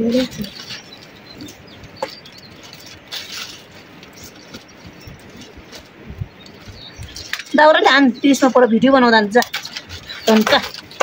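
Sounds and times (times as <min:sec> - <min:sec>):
firewood clicks and knocks: 0:01.8 - 0:07.6.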